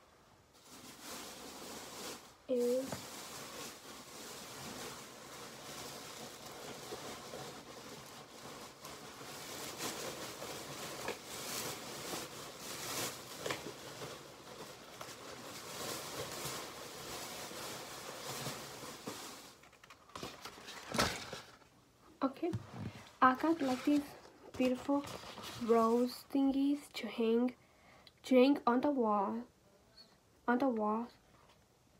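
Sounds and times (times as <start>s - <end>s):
shopping bag rustling: 0.5s - 21.7s, 22.5s - 26.4s.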